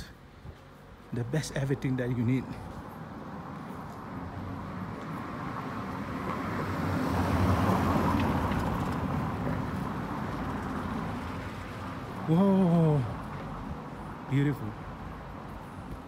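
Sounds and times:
car driving past on cobblestones: 2.7s - 12.2s.

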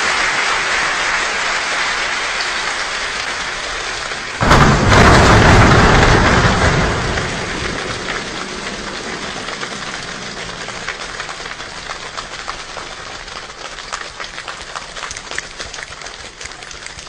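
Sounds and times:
choir body percussion rain patter: 0.0s - 17.0s
body percussion thunder rumble: 4.3s - 15.2s.

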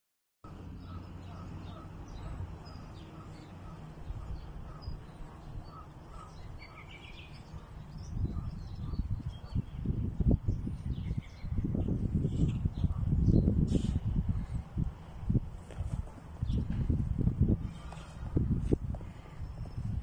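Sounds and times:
small birds chirping: 0.5s - 14.6s, 15.6s - 20.0s
wind on microphone: 4.0s - 20.0s.

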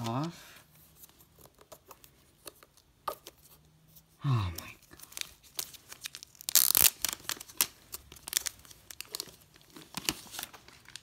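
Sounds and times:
plastic film peeling: 4.8s - 11.0s
plastic film ripping: 4.9s - 11.0s.

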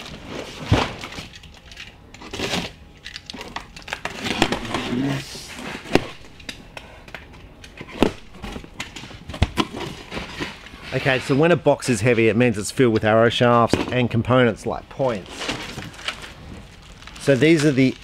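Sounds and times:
packaging rustling and crinkling: 0.0s - 7.3s, 15.0s - 18.0s.

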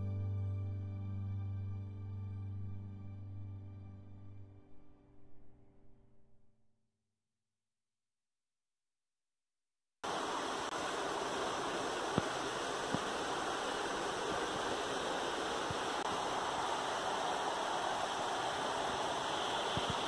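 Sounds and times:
steady hiss: 10.0s - 20.0s.

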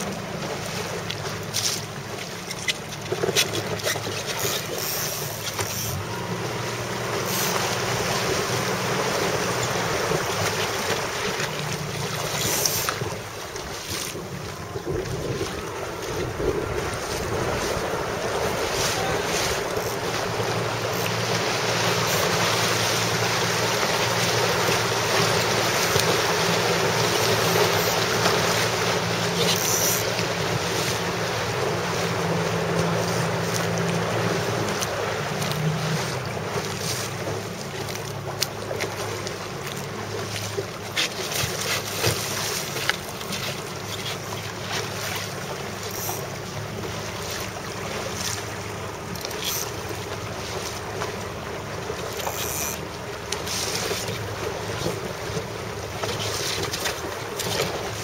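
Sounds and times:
boat engine hum: 0.0s - 58.0s
water rushing past boat hull: 0.0s - 58.0s
wind buffeting microphone: 14.2s - 20.8s.

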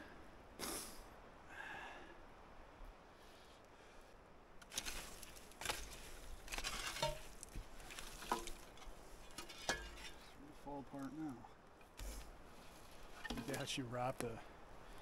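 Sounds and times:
scraping and rustling through debris: 4.6s - 11.2s, 11.8s - 14.4s.

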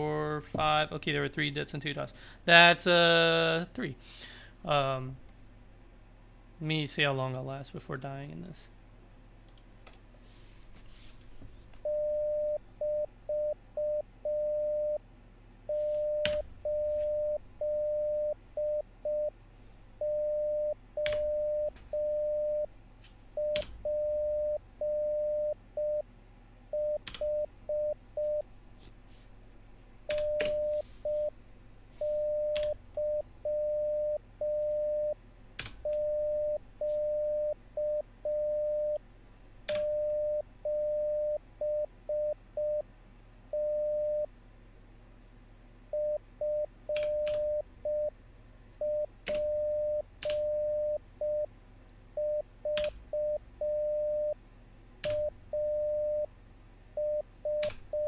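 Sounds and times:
morse code tone: 11.8s - 15.0s, 15.7s - 19.4s, 20.0s - 22.7s, 23.4s - 26.1s, 26.7s - 28.5s, 30.1s - 31.4s, 32.0s - 35.2s, 35.9s - 39.0s, 39.8s - 42.8s, 48.8s - 51.5s, 52.2s - 54.4s, 55.1s - 56.3s.

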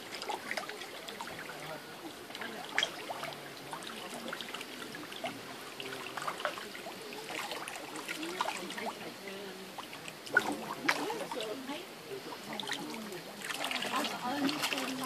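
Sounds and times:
fish splashing at water surface: 0.0s - 15.0s.

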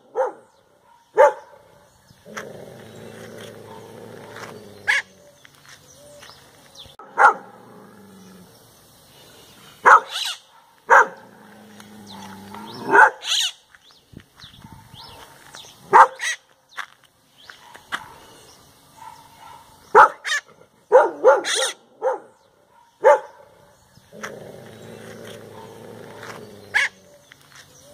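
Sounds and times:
parakeet imitating dog barks: 4.9s - 5.1s, 9.9s - 11.2s, 20.0s - 22.2s, 26.7s - 27.0s.

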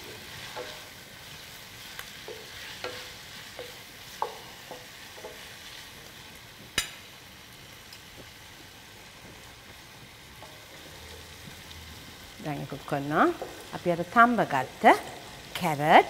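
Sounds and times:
spatula scraping and tapping pot: 0.0s - 1.0s, 2.0s - 5.7s, 13.2s - 13.7s
food sizzling in oil: 0.0s - 16.0s.

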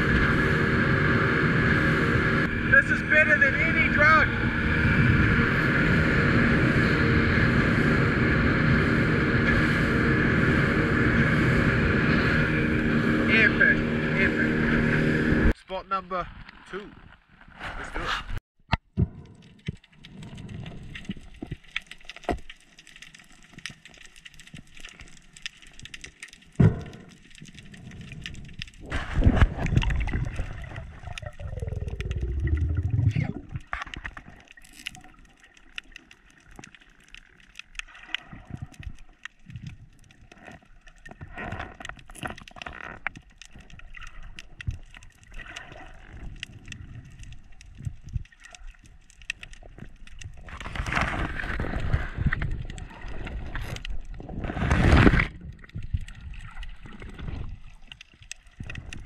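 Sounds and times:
underwater water rushing: 0.0s - 15.6s, 19.0s - 59.0s
sharp underwater clicks: 18.7s - 59.0s
underwater bubbles: 18.9s - 59.0s.

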